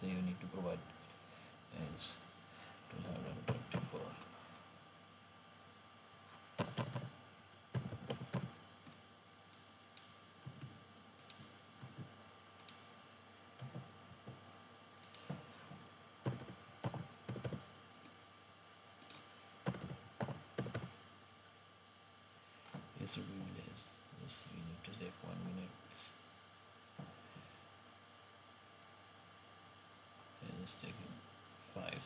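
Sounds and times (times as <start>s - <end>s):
typing on computer keyboard: 6.6s - 7.1s, 7.7s - 8.5s, 16.3s - 17.6s, 19.0s - 20.9s.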